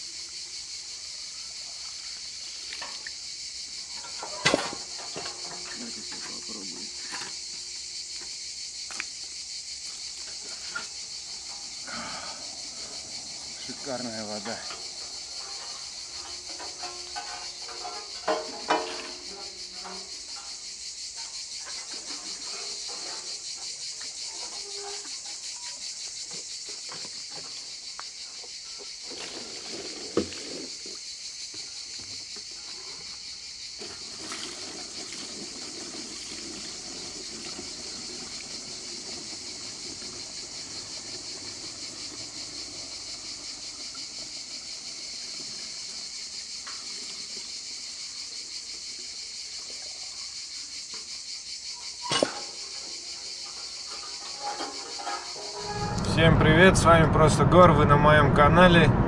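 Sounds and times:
insect chorus: 0:00.0 - 0:59.0
water pouring into plastic bottles: 0:29.0 - 0:31.0, 0:33.8 - 0:47.5.

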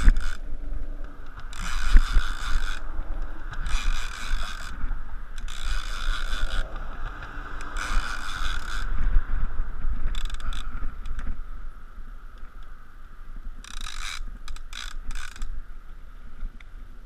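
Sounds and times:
fishing reel clicker buzzing: 0:00.0 - 0:00.5, 0:01.3 - 0:02.8, 0:03.5 - 0:06.6, 0:07.6 - 0:08.9, 0:10.1 - 0:11.2, 0:13.6 - 0:15.6
wind rumble on microphone: 0:00.0 - 0:17.0.

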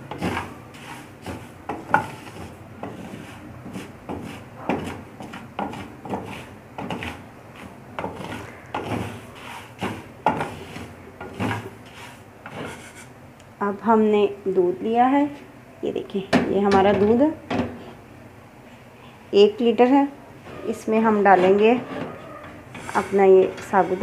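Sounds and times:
wooden spatula scraping metal pan: 0:00.0 - 0:13.1, 0:20.5 - 0:24.0.

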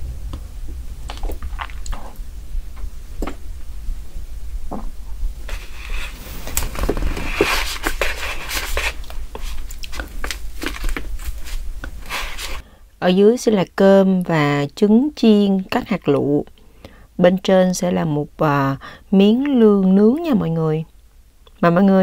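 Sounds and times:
low hum: 0:00.0 - 0:12.6
wooden spoon scraping food: 0:05.4 - 0:12.6.

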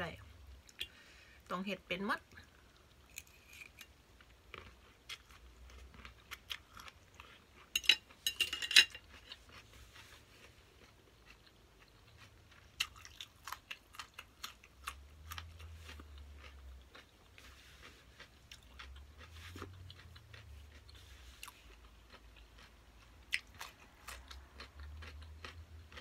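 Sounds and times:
wet chewing: 0:09.0 - 0:26.0.

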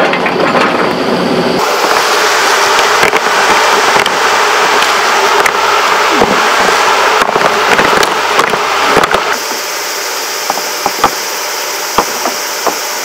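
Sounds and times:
machinery clattering: 0:00.0 - 0:09.6, 0:11.9 - 0:13.0
machinery humming: 0:00.0 - 0:13.0
sharp machine knocks: 0:10.4 - 0:11.2, 0:12.0 - 0:12.9.

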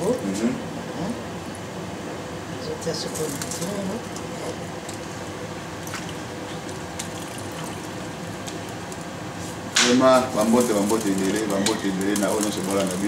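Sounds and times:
steady background noise: 0:00.0 - 0:13.0
wet food dripping: 0:03.2 - 0:09.1.

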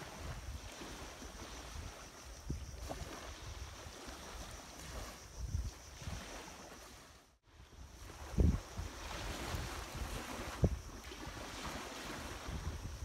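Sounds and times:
wind buffeting microphone: 0:00.0 - 0:06.4, 0:07.6 - 0:13.0
wind and surf hiss: 0:00.0 - 0:13.0.

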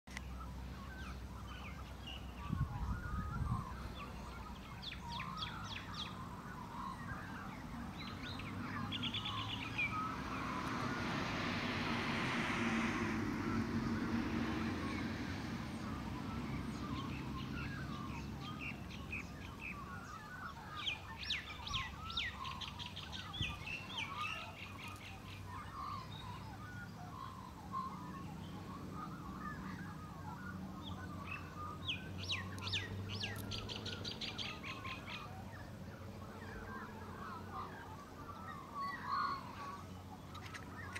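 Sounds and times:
birds chirping and trilling: 0:00.1 - 0:40.9
rushing noise: 0:09.5 - 0:16.4.

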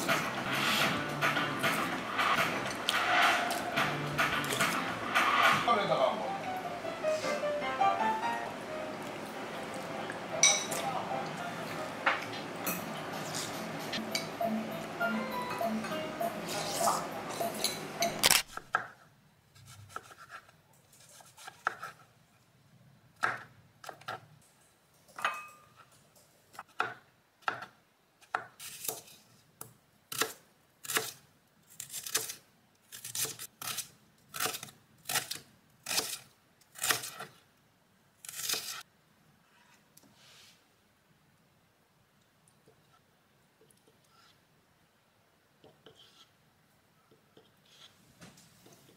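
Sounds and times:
knife cutting onion on board: 0:19.6 - 0:22.0, 0:26.5 - 0:29.2, 0:30.1 - 0:37.4, 0:38.2 - 0:38.8.

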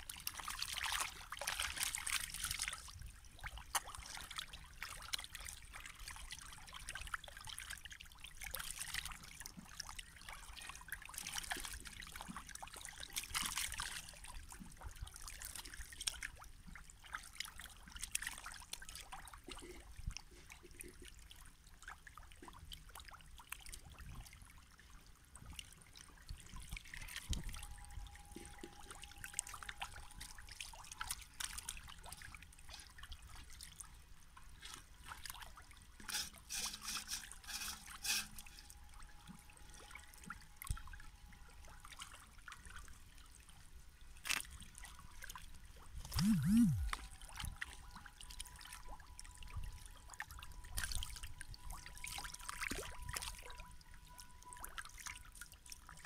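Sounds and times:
fish splashing and slurping: 0:00.0 - 0:16.9, 0:17.6 - 0:25.0, 0:26.2 - 0:33.9, 0:34.5 - 0:39.1, 0:44.2 - 0:48.7.

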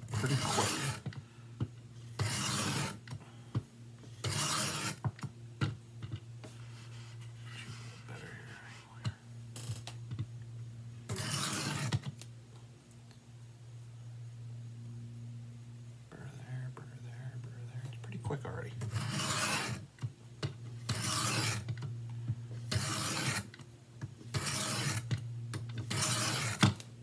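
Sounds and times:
steady low hum: 0:00.0 - 0:27.0
knife scraping on sharpening plate: 0:00.2 - 0:01.0, 0:02.2 - 0:02.9, 0:04.2 - 0:05.0, 0:11.1 - 0:12.0, 0:18.8 - 0:19.8, 0:20.9 - 0:21.6, 0:22.7 - 0:23.5, 0:24.4 - 0:25.0, 0:25.9 - 0:26.6.

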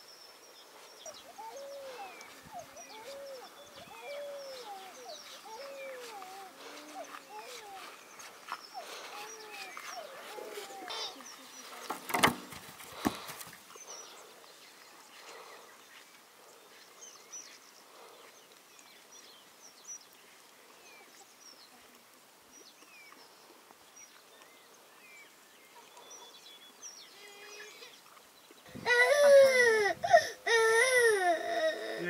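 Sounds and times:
bird chirps: 0:00.0 - 0:11.9.

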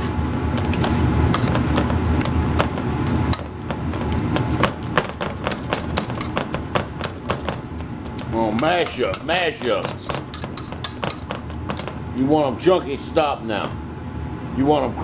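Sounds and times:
metal masher tapping pot: 0:01.4 - 0:12.0.

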